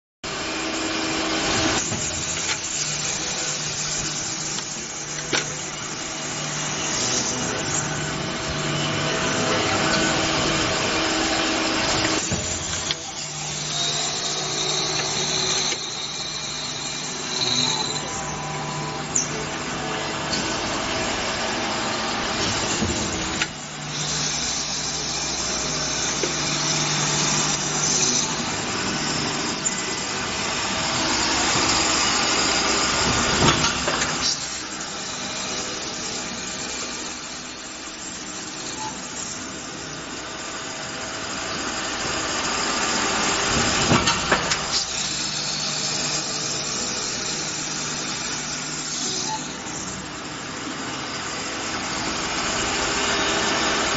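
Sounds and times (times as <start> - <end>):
high whine: 0.3 - 34.2
machine motor hum: 0.3 - 53.9.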